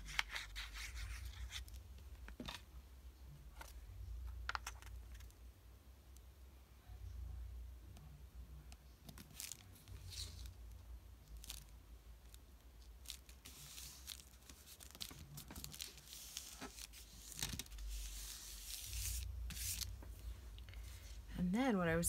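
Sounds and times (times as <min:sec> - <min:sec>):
paper rustling and scraping: 0:00.0 - 0:01.8, 0:13.0 - 0:21.2
faint low hum: 0:00.0 - 0:22.0.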